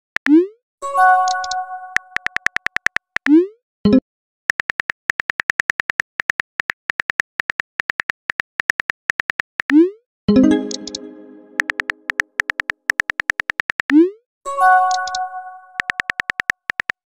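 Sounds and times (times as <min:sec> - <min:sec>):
phone keyboard typing clicks: 0:01.2 - 0:03.3, 0:04.5 - 0:09.8, 0:10.4 - 0:14.0, 0:14.8 - 0:17.0.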